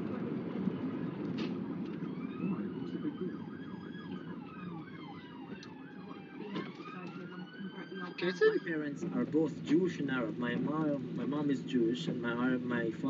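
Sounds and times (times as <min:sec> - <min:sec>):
road noise: 0:00.0 - 0:13.0
siren slow wail: 0:01.6 - 0:09.2
siren fast yelp: 0:02.1 - 0:09.0.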